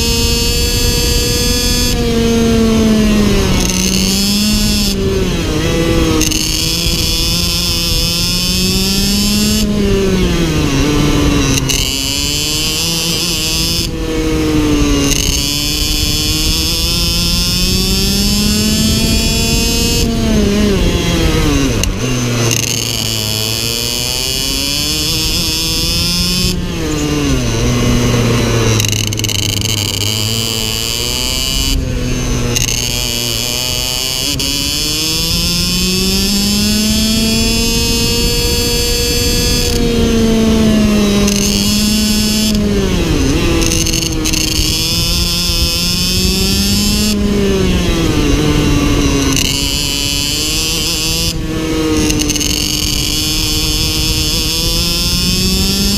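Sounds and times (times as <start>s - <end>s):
kart engine revving: 0.0s - 55.9s.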